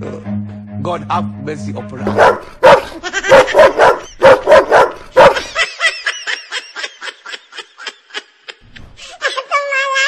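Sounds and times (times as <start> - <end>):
dog barking: 2.1 - 5.5.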